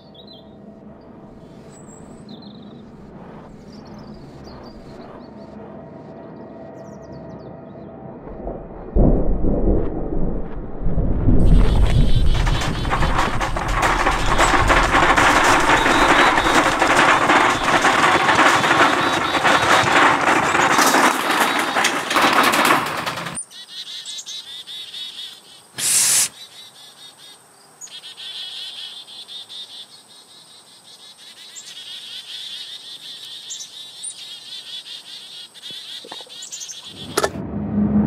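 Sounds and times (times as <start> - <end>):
insects chirping: 11.4 - 21.9, 23.4 - 37.2
shopping cart rattling over pavement: 11.4 - 23.4
bird chirps: 23.4 - 37.2
short loud noise burst: 25.8 - 26.3.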